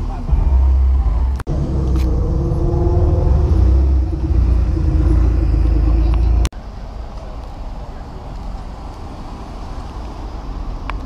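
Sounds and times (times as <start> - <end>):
car engine rumbling past: 0.0 - 7.0.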